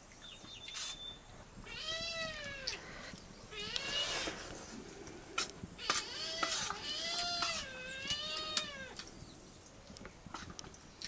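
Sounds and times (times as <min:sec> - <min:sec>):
animal crying: 0:05.8 - 0:09.0.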